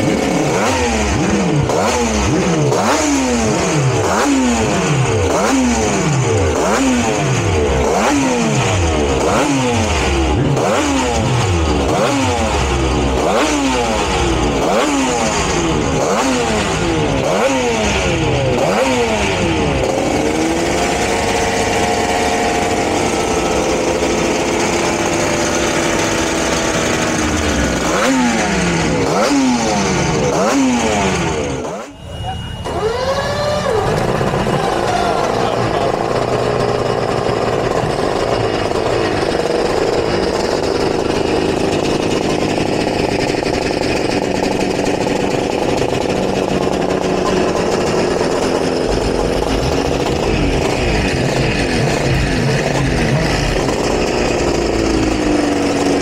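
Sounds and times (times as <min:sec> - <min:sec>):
race bike engine revving: 0:00.0 - 0:56.0.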